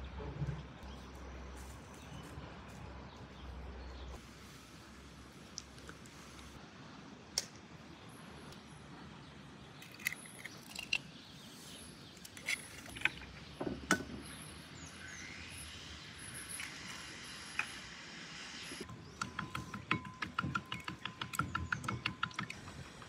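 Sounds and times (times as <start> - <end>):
eggs cracking against a bowl: 9.8 - 11.0.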